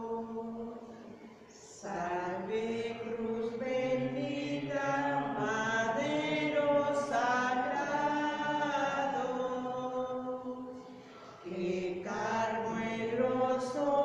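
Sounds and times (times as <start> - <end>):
slow hymn singing: 0.0 - 14.0.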